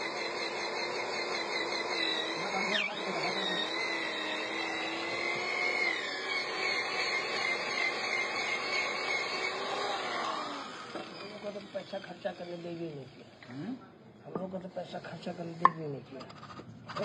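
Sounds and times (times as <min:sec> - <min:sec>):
machine motor whining: 0:00.0 - 0:13.4.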